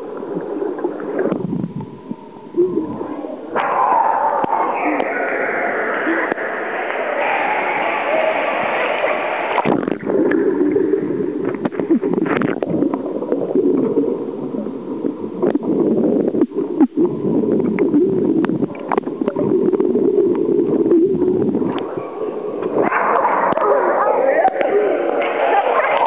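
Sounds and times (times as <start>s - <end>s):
bubbling water: 0.0s - 26.0s
muffled underwater rush: 0.0s - 26.0s
sharp clicks and knocks in water: 11.4s - 13.1s, 17.6s - 21.0s.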